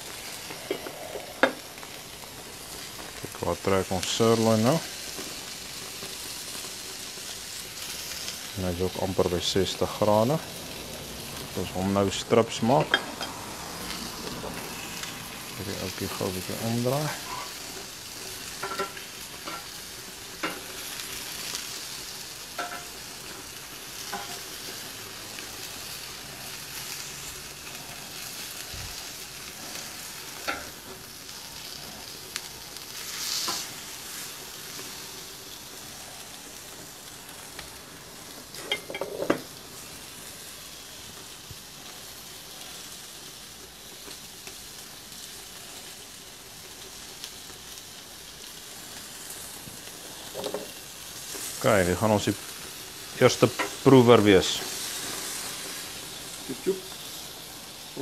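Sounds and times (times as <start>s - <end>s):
meat sizzling on a grill: 0.0s - 58.0s.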